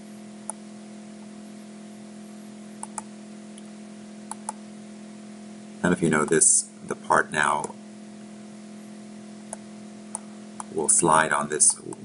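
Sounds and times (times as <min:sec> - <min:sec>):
steady electrical hum: 0:00.0 - 0:12.0
computer mouse clicking: 0:02.8 - 0:03.1, 0:04.3 - 0:04.6.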